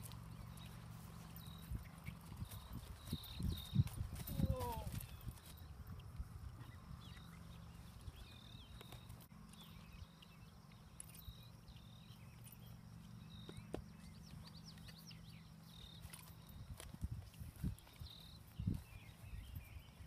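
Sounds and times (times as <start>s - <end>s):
hoof thuds on grass: 0.0s - 6.3s, 13.3s - 15.1s.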